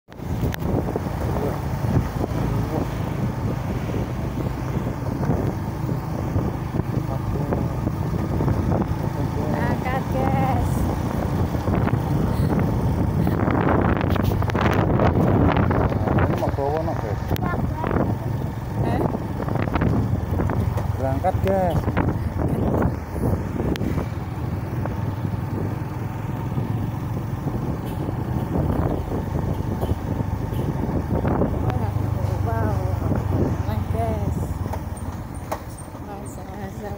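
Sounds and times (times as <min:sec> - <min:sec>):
wind on microphone: 0:00.1 - 0:34.7
vehicle engines droning: 0:00.1 - 0:36.9.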